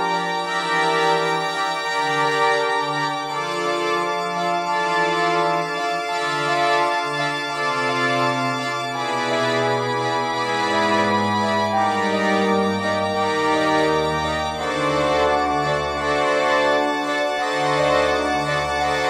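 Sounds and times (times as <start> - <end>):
organ-like chords: 0.0 - 19.0
low bass line: 10.7 - 14.7.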